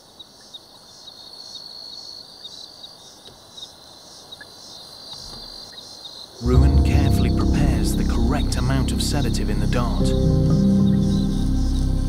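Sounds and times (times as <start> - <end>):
crickets chirping: 0.0 - 12.0
thin high trill: 6.4 - 12.0.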